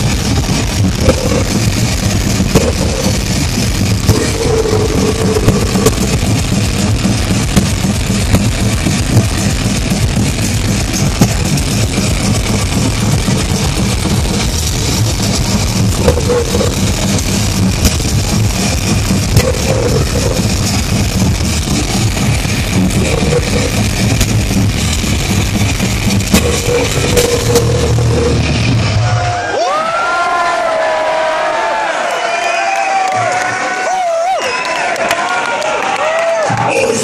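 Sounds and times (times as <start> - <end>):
death metal band playing live: 0.0 - 29.6.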